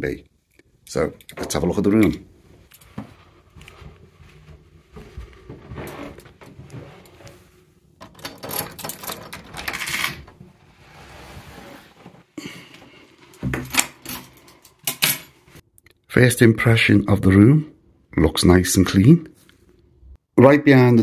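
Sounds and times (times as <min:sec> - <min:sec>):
keys jingling and scraping in lock: 0:08.0 - 0:10.3, 0:13.7 - 0:15.4
door clicks and knocks: 0:08.0 - 0:10.4.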